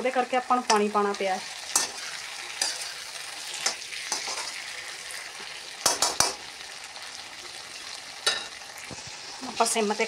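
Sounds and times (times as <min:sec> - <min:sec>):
vegetables sizzling in a pan: 0:00.0 - 0:10.0.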